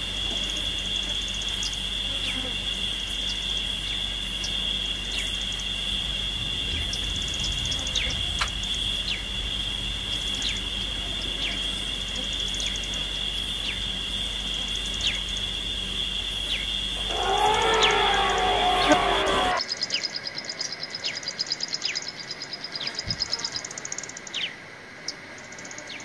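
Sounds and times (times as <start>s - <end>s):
high-pitched insect drone: 0.0s - 19.6s.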